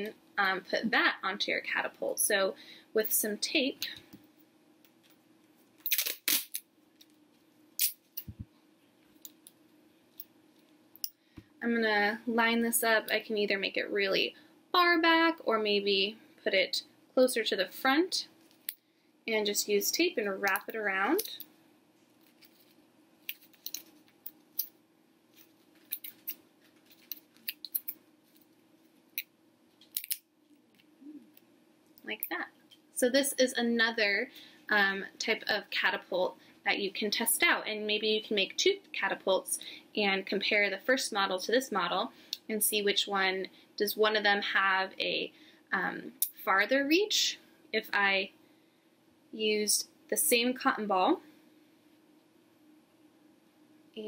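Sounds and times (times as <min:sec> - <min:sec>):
masking tape tearing off roll: 0:05.8 - 0:06.6, 0:07.8 - 0:08.0.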